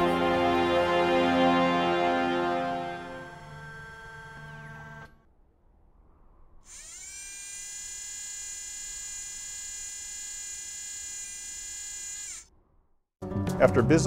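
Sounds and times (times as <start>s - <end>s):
electric motor whine: 2.8s - 5.2s, 6.7s - 12.5s.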